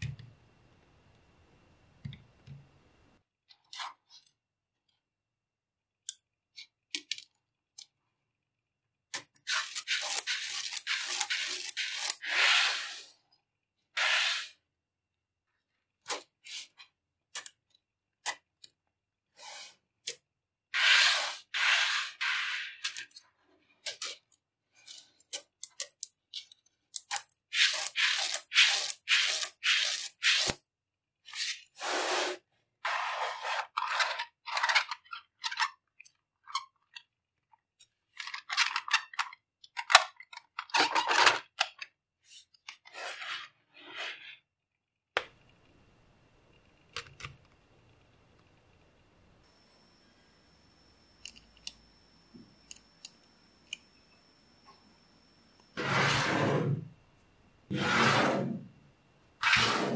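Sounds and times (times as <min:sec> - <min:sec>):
magnetic balls clicking: 0:24.9 - 0:26.2, 0:26.9 - 0:30.6.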